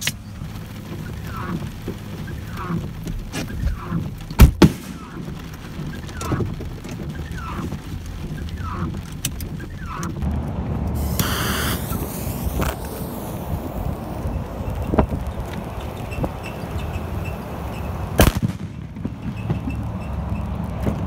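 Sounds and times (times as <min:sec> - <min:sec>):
firecracker bangs: 0:04.4 - 0:05.3, 0:18.1 - 0:19.8
short loud hiss: 0:11.0 - 0:14.2.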